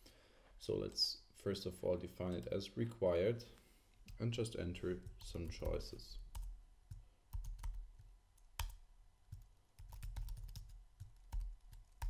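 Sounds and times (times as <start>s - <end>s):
computer keyboard typing: 5.0s - 12.0s.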